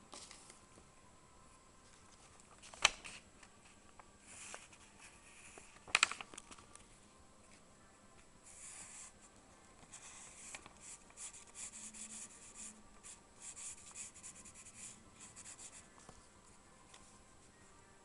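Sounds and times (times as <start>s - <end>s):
pencil scratching on paper: 9.9s - 15.9s.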